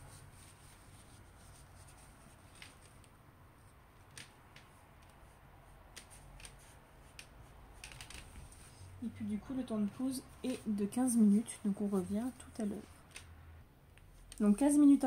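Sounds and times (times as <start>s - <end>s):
tissue rustling on skin: 0.0s - 3.8s, 8.2s - 13.1s.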